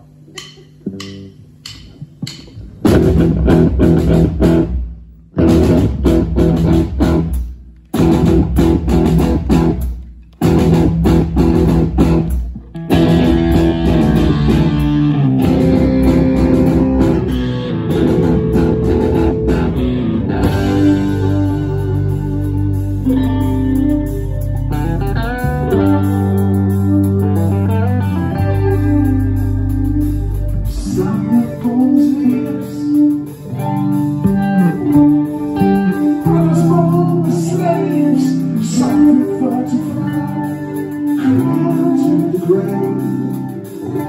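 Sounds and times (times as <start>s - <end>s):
rock band playing: 0.0s - 44.0s
count-in clicks: 0.3s - 2.6s.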